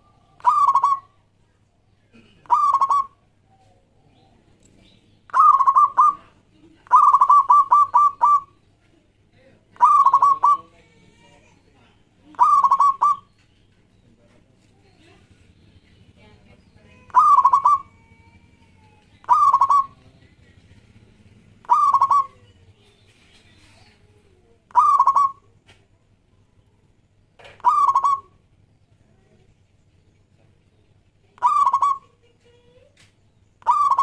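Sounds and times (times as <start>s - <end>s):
dove cooing: 0.0s - 1.2s, 2.1s - 4.5s, 5.3s - 8.6s, 9.8s - 10.8s, 12.3s - 13.4s, 17.0s - 22.7s, 23.6s - 25.6s, 27.4s - 28.5s, 31.3s - 32.3s, 33.6s - 34.0s.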